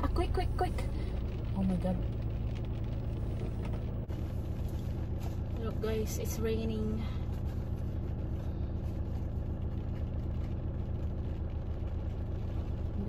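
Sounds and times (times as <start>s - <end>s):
engines idling in traffic: 0.0s - 13.0s.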